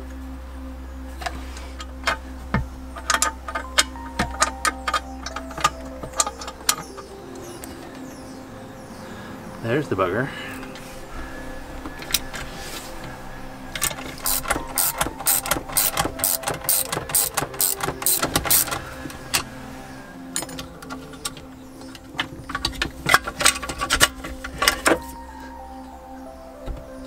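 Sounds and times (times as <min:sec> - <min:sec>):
background music: 0:00.0 - 0:27.0
ratchet wrench clicking: 0:13.8 - 0:19.4.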